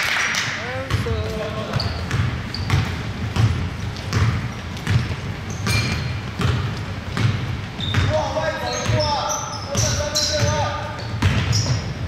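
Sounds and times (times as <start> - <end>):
basketball bouncing on wooden floor: 0.7 - 12.0.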